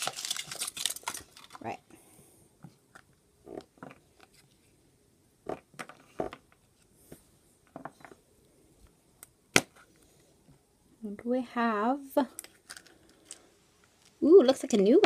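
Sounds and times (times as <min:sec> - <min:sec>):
chocolate shell cracking: 0:00.0 - 0:01.6.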